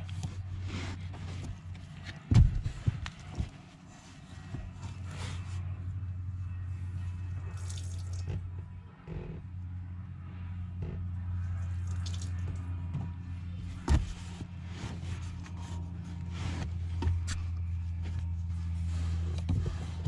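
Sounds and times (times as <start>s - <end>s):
steady low hum: 0.0s - 20.0s
coolant trickling: 7.5s - 8.4s.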